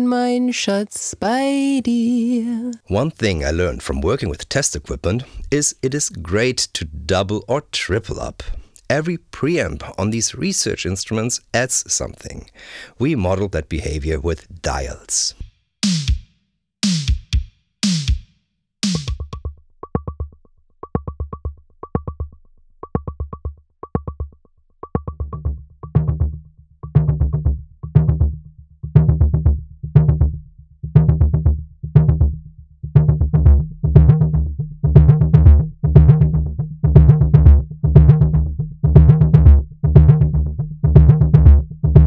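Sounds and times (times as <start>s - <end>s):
drum machine loop: 15.8s - 20.3s, 22.9s - 30.4s, 31.0s - 42.0s.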